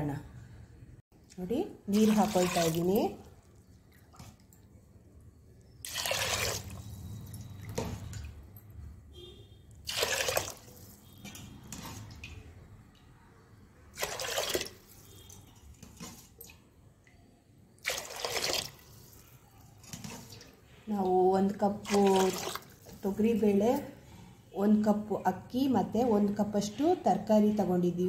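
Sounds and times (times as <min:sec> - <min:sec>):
water pouring into pot: 0:01.9 - 0:03.2, 0:05.8 - 0:06.9, 0:09.8 - 0:10.8, 0:13.9 - 0:14.9, 0:17.8 - 0:19.2, 0:21.8 - 0:23.0.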